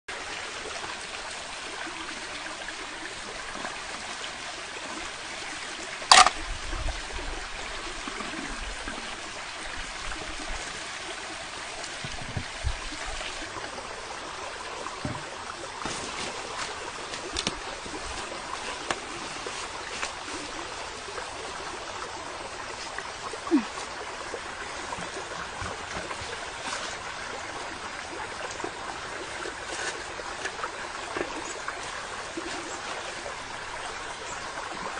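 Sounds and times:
stream water rushing over rocks: 0.1s - 34.9s.

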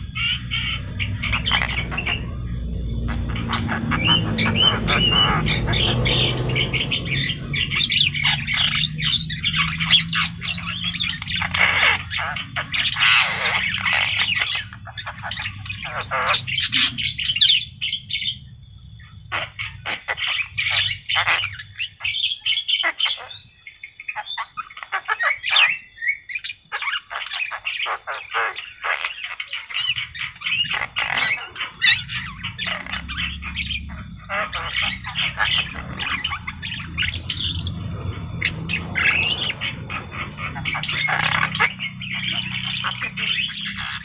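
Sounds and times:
myna singing harsh squawks: 27.0s - 44.0s.

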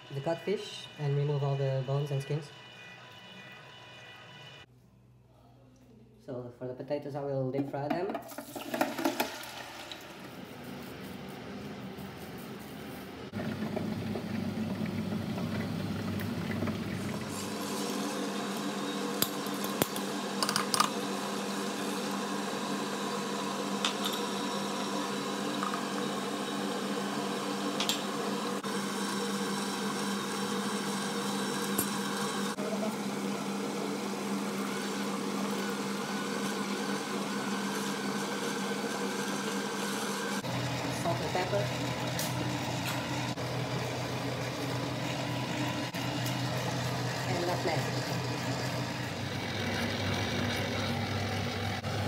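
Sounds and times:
electric stirrer motor humming: 13.3s - 52.0s.

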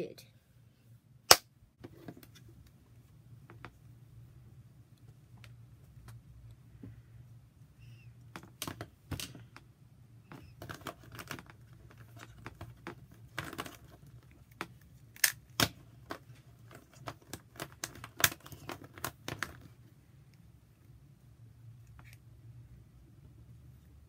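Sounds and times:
plastic puzzle pieces clicking: 10.5s - 19.7s.

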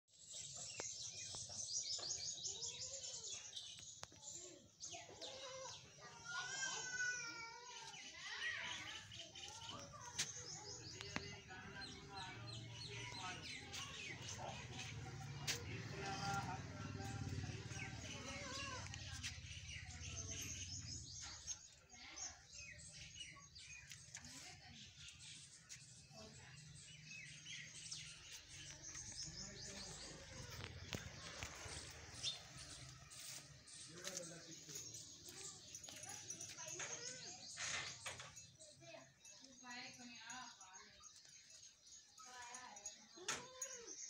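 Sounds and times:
small birds chirping: 0.0s - 44.0s.

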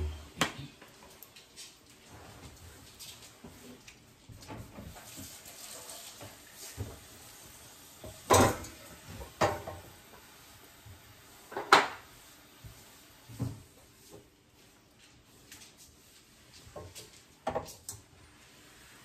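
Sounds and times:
faint rustling and scraping: 0.0s - 19.0s
kitchenware clattering: 8.0s - 10.2s, 11.4s - 12.1s.

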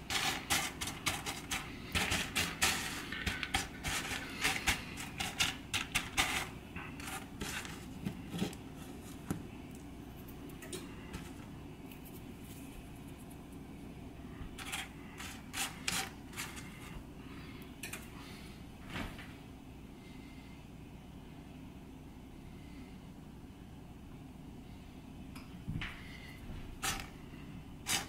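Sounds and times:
dry beans clicking and rattling: 0.0s - 12.2s, 14.5s - 17.0s, 26.8s - 27.2s.

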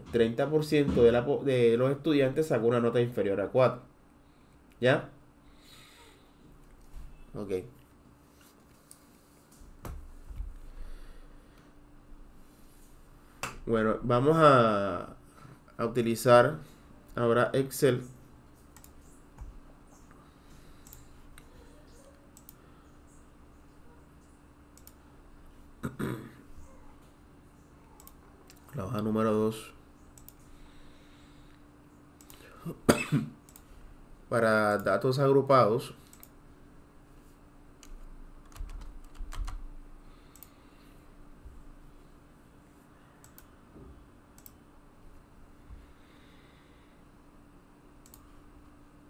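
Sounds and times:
faint steady hum: 0.0s - 49.0s
computer mouse clicking: 18.6s - 20.2s, 20.8s - 22.6s, 24.8s - 25.0s, 28.0s - 28.7s, 30.1s - 30.5s, 33.4s - 33.7s, 36.0s - 36.4s, 37.8s - 39.6s, 40.3s - 40.6s, 43.2s - 43.5s, 44.4s - 44.6s, 48.0s - 48.3s
typing on computer keyboard: 37.8s - 39.6s.

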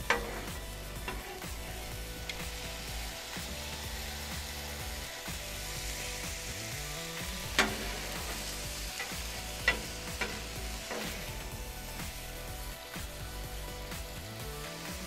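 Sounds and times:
spatula clanking on steel: 0.0s - 1.3s, 7.5s - 11.4s
food sizzling on griddle: 0.0s - 15.0s.

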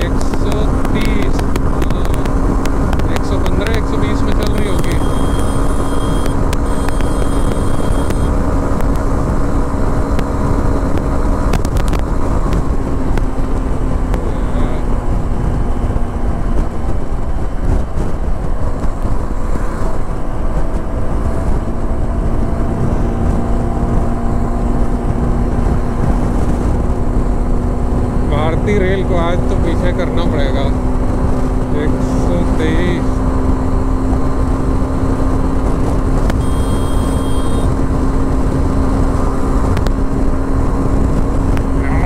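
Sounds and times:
motorcycle engine: 0.0s - 18.1s, 30.4s - 42.0s
wind rush on microphone: 0.0s - 42.0s.

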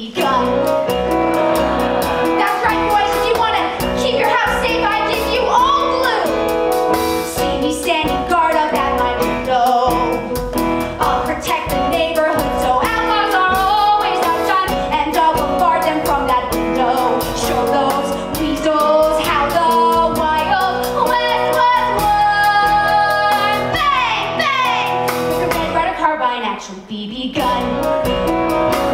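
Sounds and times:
instrumental accompaniment with beat: 0.0s - 26.0s, 27.4s - 28.9s
woman singing into a microphone: 7.3s - 10.4s, 11.0s - 27.8s.

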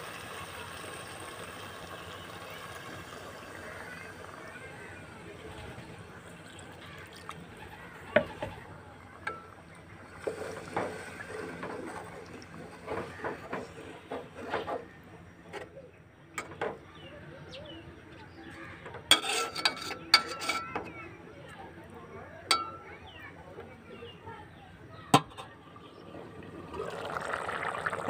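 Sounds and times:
spoon clinking against metal pot: 19.1s - 20.8s, 22.5s - 22.9s
spoon scraping and knocking pot: 19.1s - 20.8s.

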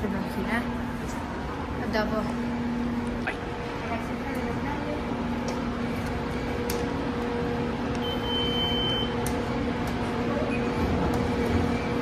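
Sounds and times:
steady low hum: 0.0s - 12.0s
ticket gate high beep: 8.0s - 9.2s.

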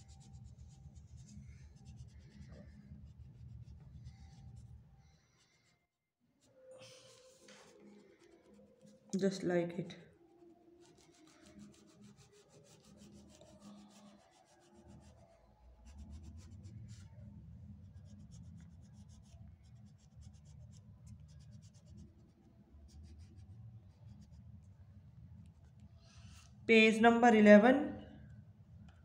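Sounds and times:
crayon scratching on paper: 0.0s - 5.7s, 6.8s - 9.5s, 10.3s - 17.1s, 17.9s - 24.4s.

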